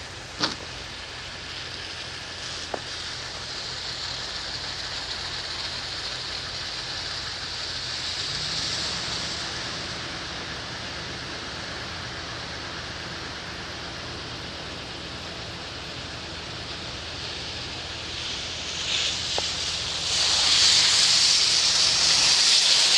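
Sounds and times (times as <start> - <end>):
tyres hissing on wet road: 0.0 - 22.9
car passing: 5.0 - 15.3.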